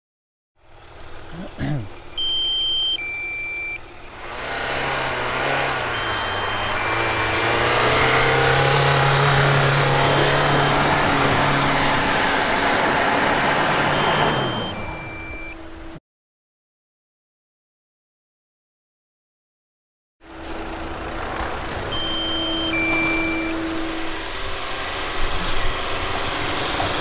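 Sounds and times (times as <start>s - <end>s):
car engine pulling hard: 0.6s - 16.0s, 20.3s - 27.0s
short electronic beeps: 2.2s - 3.8s, 5.6s - 9.2s, 13.8s - 15.6s, 21.9s - 23.8s
tyres churning through snow: 3.9s - 15.9s, 20.3s - 27.0s.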